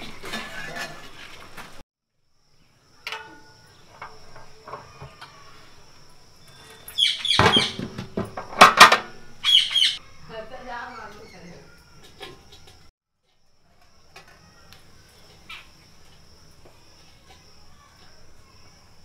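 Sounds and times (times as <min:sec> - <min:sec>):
birds chirping: 0:03.6 - 0:08.0, 0:09.2 - 0:12.8
cooking pot knocking and scraping: 0:06.5 - 0:09.2.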